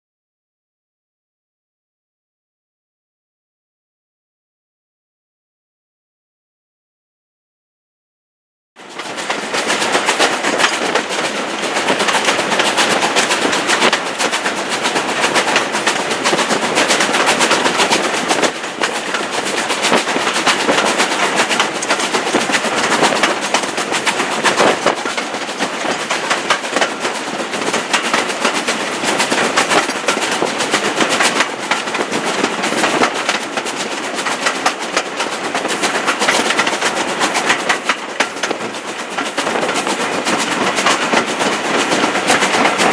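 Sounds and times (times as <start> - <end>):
steam locomotive exhaust beats: 8.8 - 42.9
train running noise: 8.8 - 42.9.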